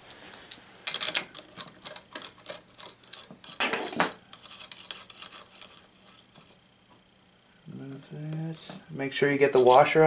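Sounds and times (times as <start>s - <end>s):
small metal clicks and rattles: 0.3s - 5.8s.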